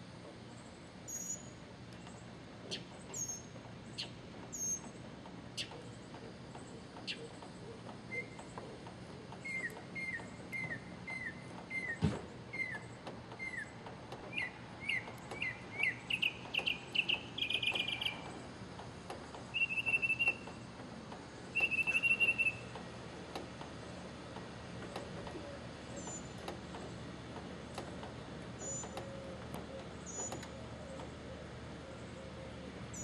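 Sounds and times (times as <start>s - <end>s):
mockingbird singing: 9.3s - 18.3s, 19.5s - 20.4s, 21.5s - 22.6s.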